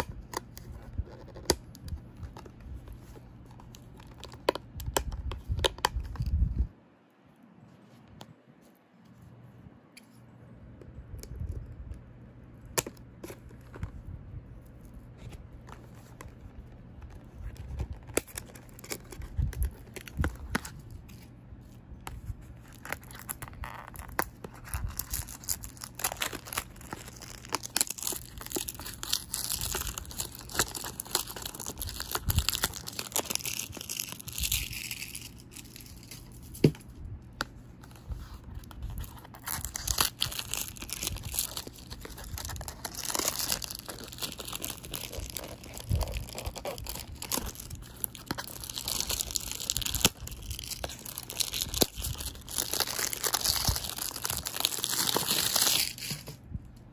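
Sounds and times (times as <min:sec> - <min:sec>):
cardboard box tearing and crinkling: 0:22.7 - 0:36.8, 0:38.2 - 0:56.4.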